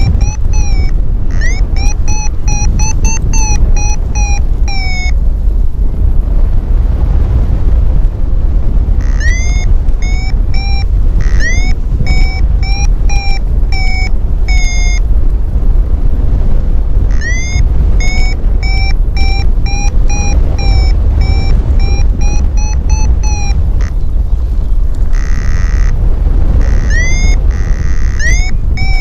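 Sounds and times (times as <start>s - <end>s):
variometer beeping: 0.0s - 5.3s, 9.0s - 15.2s, 17.0s - 24.0s, 24.9s - 29.0s
wind rush on microphone: 0.0s - 29.0s.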